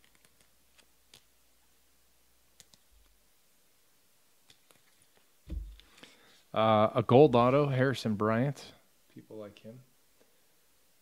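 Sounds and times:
soft thump: 0:05.5 - 0:05.8.

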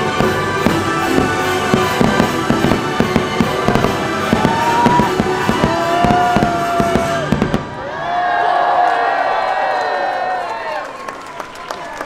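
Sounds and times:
fireworks popping and banging: 0:00.0 - 0:07.8.

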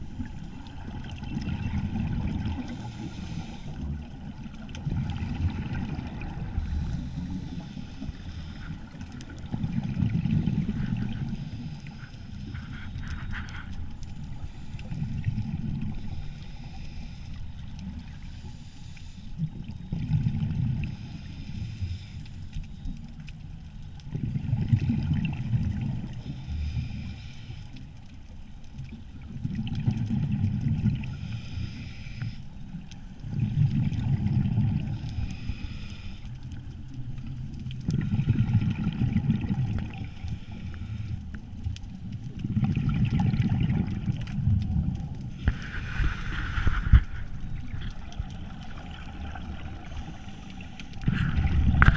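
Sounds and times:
exhaled bubbles gurgling: 0:00.0 - 0:16.4, 0:19.4 - 0:21.2, 0:24.0 - 0:27.0, 0:28.8 - 0:31.3, 0:33.2 - 0:35.5, 0:36.4 - 0:51.9
scuba regulator breathing: 0:02.6 - 0:04.0, 0:06.5 - 0:09.1, 0:10.5 - 0:19.4, 0:20.8 - 0:22.9, 0:26.2 - 0:27.9, 0:31.0 - 0:32.6, 0:34.8 - 0:36.8, 0:39.9 - 0:41.5, 0:45.3 - 0:48.1, 0:49.2 - 0:51.9.

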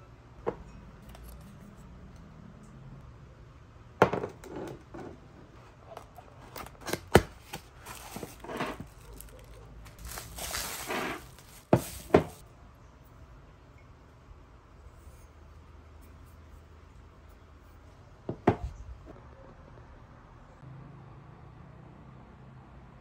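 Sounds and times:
cardboard and plastic rustling: 0:05.7 - 0:12.4.

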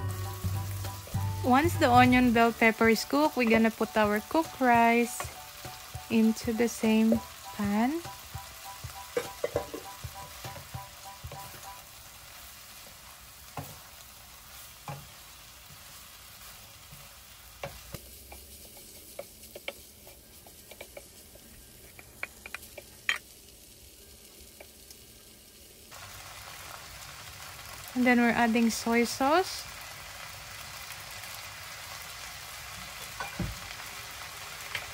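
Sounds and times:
rice sizzling in frying pan: 0:00.0 - 0:34.9
wooden spoon tapping and scraping pan: 0:03.4 - 0:11.8, 0:13.5 - 0:13.9, 0:14.8 - 0:15.2, 0:17.6 - 0:23.2.

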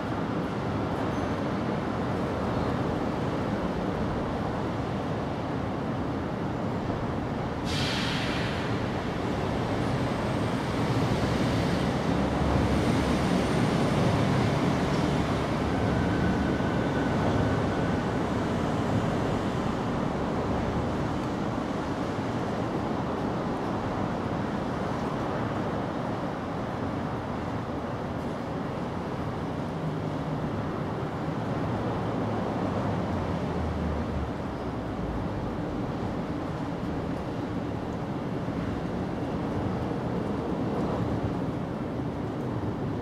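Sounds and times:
brief hiss: 0:07.6 - 0:08.9.

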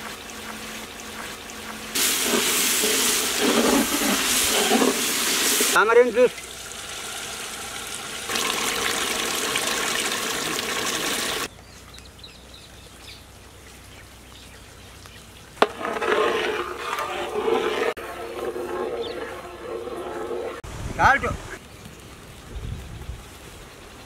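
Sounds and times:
liquid pouring and splashing: 0:00.1 - 0:11.5
liquid trickling: 0:00.1 - 0:11.5.

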